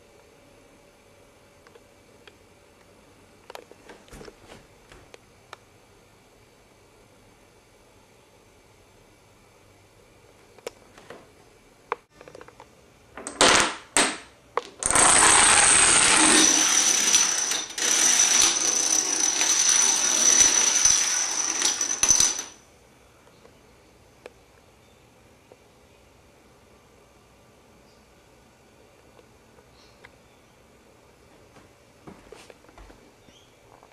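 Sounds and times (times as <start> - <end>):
dominoes clattering: 14.8 - 22.6.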